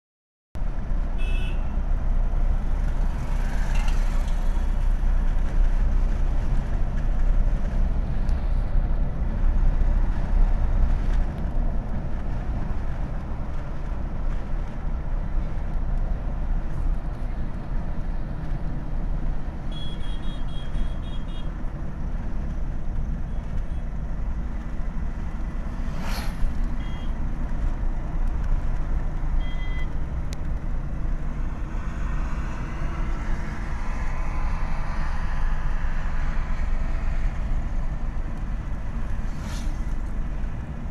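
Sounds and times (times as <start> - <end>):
engine and tyre rumble in car: 0.6 - 40.9
short high beeps: 26.8 - 27.2.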